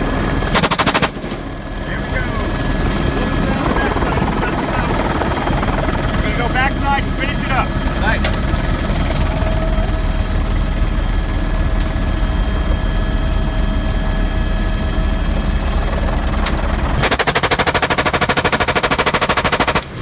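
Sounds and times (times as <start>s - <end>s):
helicopter running: 0.0s - 20.0s
rapid automatic gunfire: 0.5s - 1.4s, 15.6s - 20.0s.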